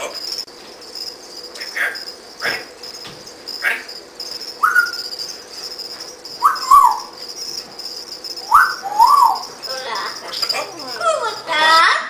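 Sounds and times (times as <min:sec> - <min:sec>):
dog whining: 0:03.5 - 0:05.3, 0:06.4 - 0:07.2, 0:08.4 - 0:11.8.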